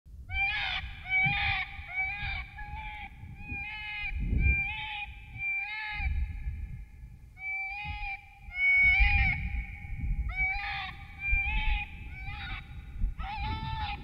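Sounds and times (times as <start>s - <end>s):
predator call bleating cries: 0.3s - 6.2s, 10.3s - 14.0s.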